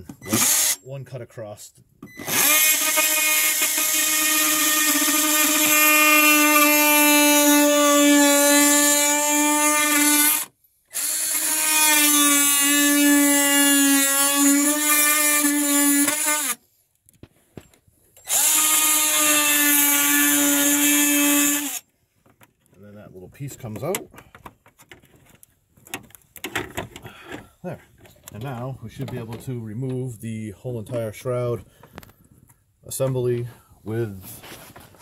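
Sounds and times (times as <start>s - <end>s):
oscillating multi-tool cutting plastic: 0.2s - 0.8s, 2.1s - 16.6s, 18.2s - 21.8s.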